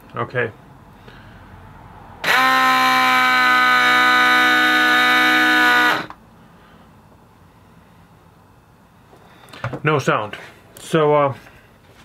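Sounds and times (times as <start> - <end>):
air compressor buzzing: 2.2 - 6.2.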